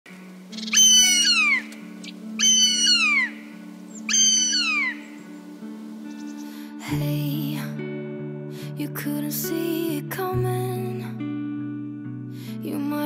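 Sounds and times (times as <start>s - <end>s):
soft music drone: 0.1s - 13.0s
bird of prey whistling call: 0.5s - 5.3s.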